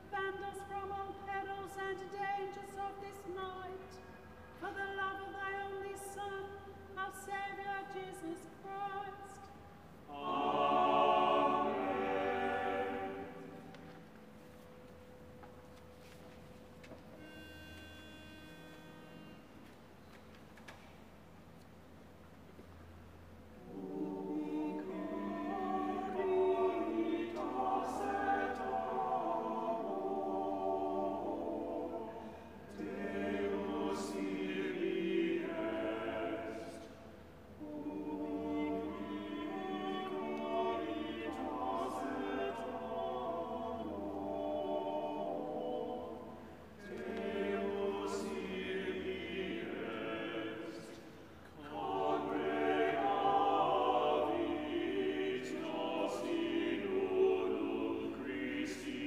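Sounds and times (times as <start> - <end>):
mixed choir singing: 4.6 - 14.0, 23.6 - 59.0.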